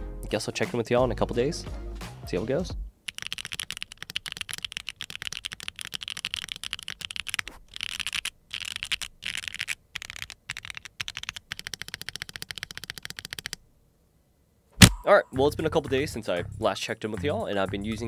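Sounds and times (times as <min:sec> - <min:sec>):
fast typing on mechanical keyboard: 0:03.1 - 0:13.6.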